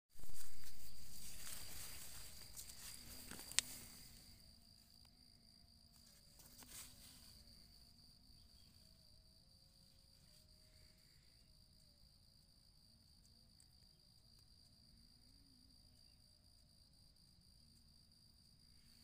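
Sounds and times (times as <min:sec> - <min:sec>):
high-pitched insect trill: 0:00.2 - 0:19.0.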